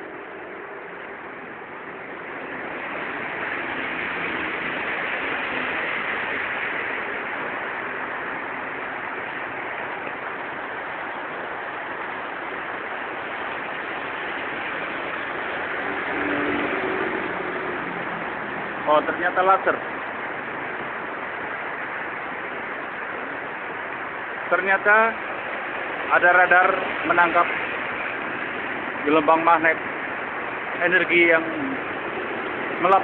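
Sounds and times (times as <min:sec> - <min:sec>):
rain on a wet road: 0:00.0 - 0:33.0
traffic swishing on wet road: 0:00.0 - 0:33.0.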